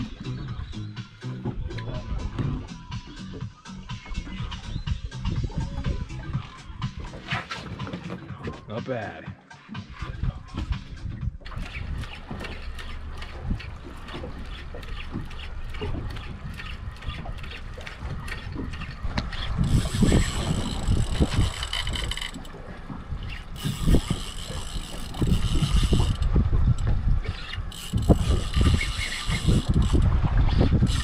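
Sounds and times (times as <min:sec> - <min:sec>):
reel drag whining: 0:00.0 - 0:08.3, 0:09.9 - 0:31.0
fishing reel clicking: 0:11.5 - 0:22.5, 0:23.2 - 0:30.1.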